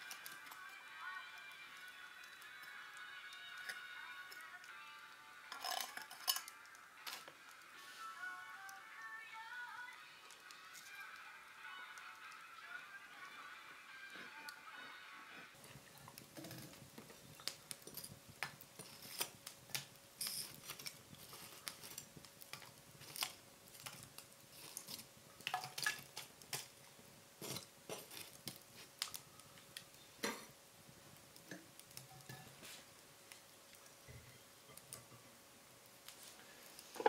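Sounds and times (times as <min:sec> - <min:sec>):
metal tongs clinking on charcoal: 0:05.5 - 0:07.3, 0:16.1 - 0:26.7, 0:27.4 - 0:29.2, 0:31.4 - 0:32.6.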